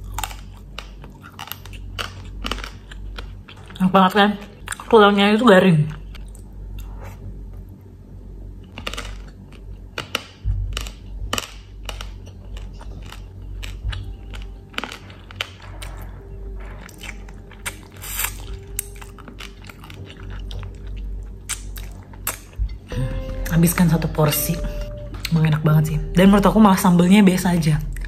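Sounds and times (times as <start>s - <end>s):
crunchy chewing: 0.0s - 3.8s, 8.6s - 22.9s.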